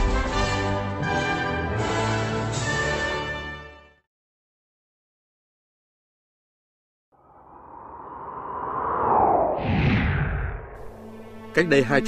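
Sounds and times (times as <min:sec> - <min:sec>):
orchestral theme music with brass: 0:00.0 - 0:04.0, 0:10.8 - 0:12.0.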